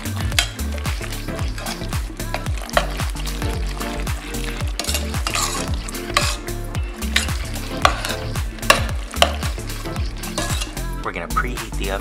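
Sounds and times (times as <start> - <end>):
metal spoon stirring beans in pot: 0.0 - 11.0.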